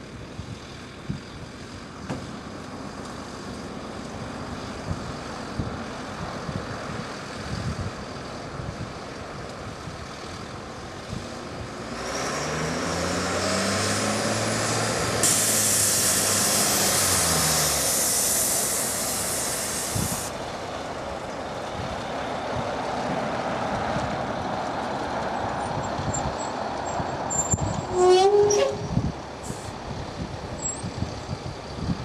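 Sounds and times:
jet engines on approach: 0.1s - 27.3s
loud hiss: 14.6s - 20.5s.

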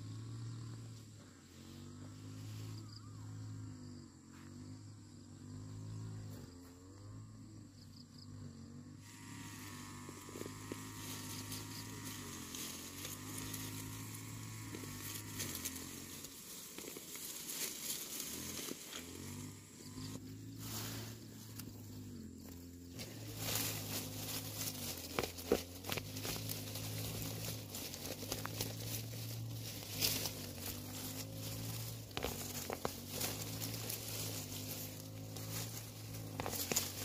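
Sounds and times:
steady low hum: 0.0s - 37.0s
leaves and stems rustling: 9.0s - 37.0s
soil pattering off roots: 9.1s - 19.5s, 21.5s - 37.0s.

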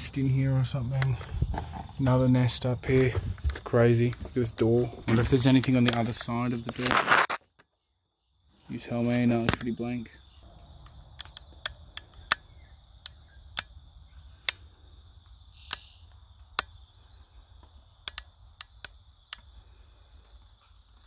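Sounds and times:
footsteps crunching on debris: 1.0s - 7.4s.

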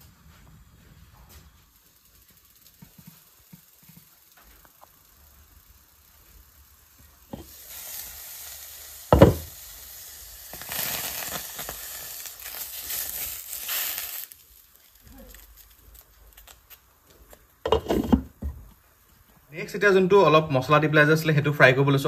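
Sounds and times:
food sizzling in a pan: 0.0s - 20.4s
glass lid clattering on pan: 17.7s - 18.2s.

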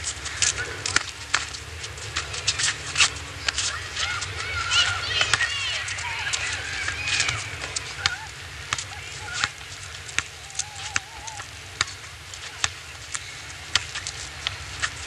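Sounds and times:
basketball bouncing on asphalt: 7.7s - 14.9s.

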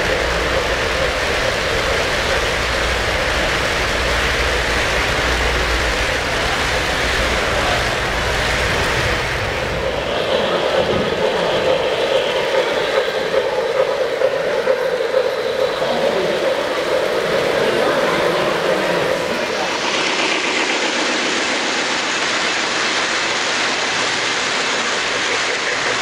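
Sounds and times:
model train rumble and clatter: 0.0s - 26.0s.

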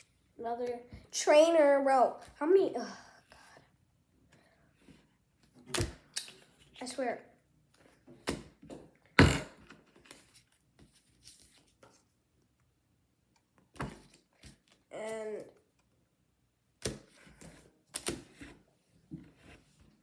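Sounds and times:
cards rustling and tapping: 16.8s - 18.6s.

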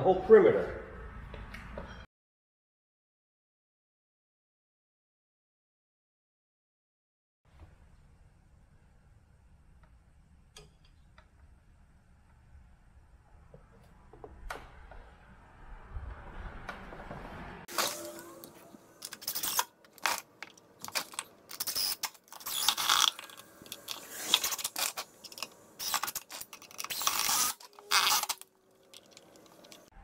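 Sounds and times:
power driver driving screws: 19.0s - 20.2s, 20.8s - 28.4s.

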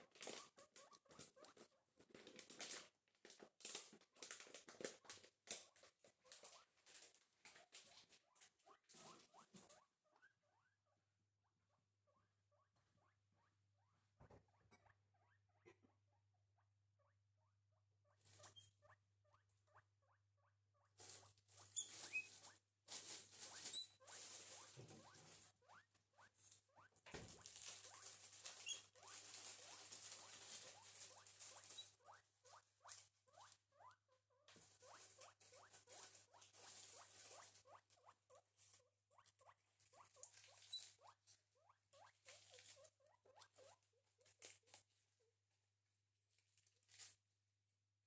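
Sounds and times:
guinea pig squeaking: 0.0s - 44.9s, 46.7s - 47.2s
rustling and shuffling: 21.0s - 25.6s, 26.4s - 32.0s, 34.5s - 37.9s, 46.3s - 47.3s.

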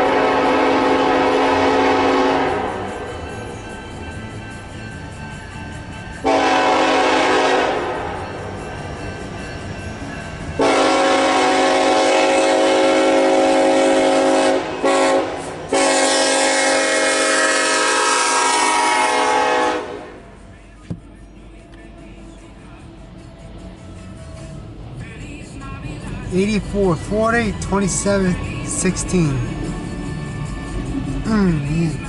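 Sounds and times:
train air horn: 0.0s - 3.0s, 6.2s - 8.2s, 10.6s - 20.4s
train rumble: 0.0s - 32.0s.

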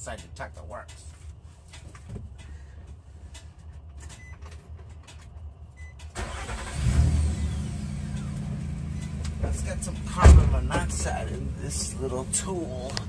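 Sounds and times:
truck engine starting and idling: 4.2s - 13.0s.

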